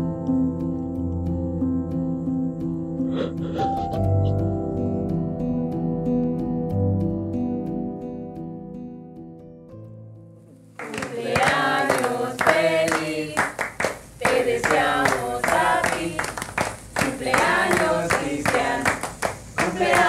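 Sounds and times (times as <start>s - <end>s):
guitar piece: 0.0s - 13.5s
hand clapping: 10.8s - 20.0s
people singing together: 10.8s - 20.0s.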